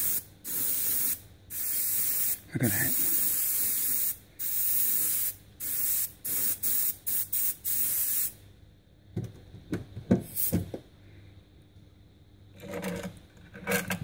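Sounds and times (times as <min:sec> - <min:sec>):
airbrush hissing: 0:00.0 - 0:08.3.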